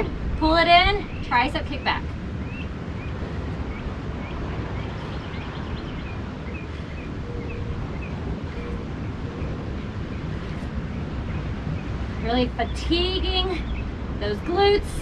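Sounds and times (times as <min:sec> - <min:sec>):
wind rumbling on microphone: 0:00.0 - 0:15.0
ocean surf rolling in: 0:01.5 - 0:12.7.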